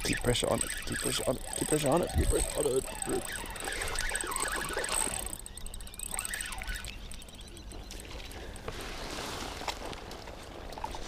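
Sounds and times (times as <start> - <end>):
fishing reel ticking: 0.0 - 8.7.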